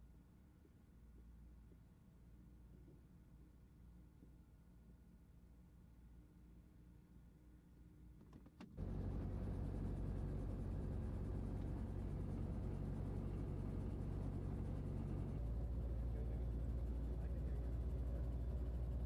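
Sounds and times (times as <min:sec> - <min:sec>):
helicopter engine and rotor drone: 0:08.8 - 0:19.0.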